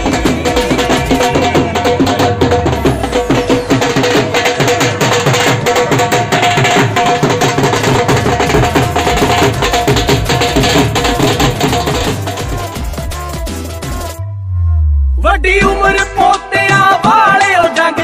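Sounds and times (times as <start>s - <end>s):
held tune: 0.0s - 5.6s
drum beaten in fast rhythm: 0.0s - 14.2s, 15.2s - 18.0s.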